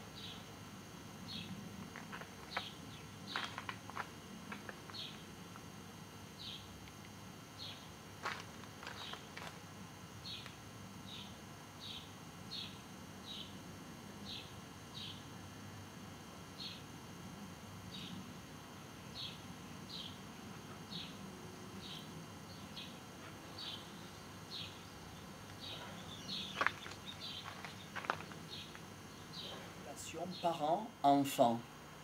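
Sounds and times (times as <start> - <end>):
cluster of clicks: 3.3 - 5.2.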